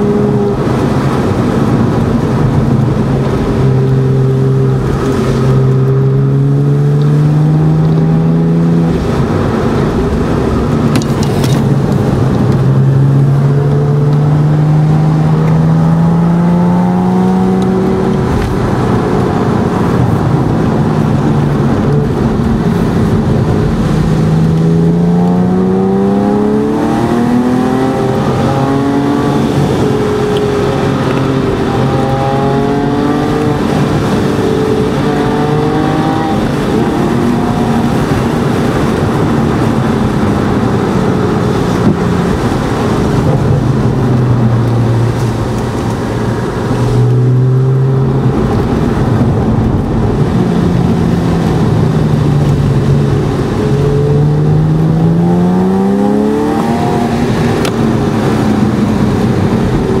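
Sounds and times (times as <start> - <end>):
car engine revving: 0.0 - 60.0.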